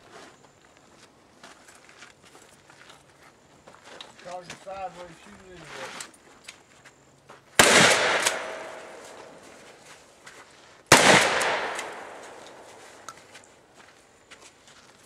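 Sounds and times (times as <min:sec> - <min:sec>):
shotgun blasts with echo: 0:07.6 - 0:09.5, 0:10.9 - 0:13.0.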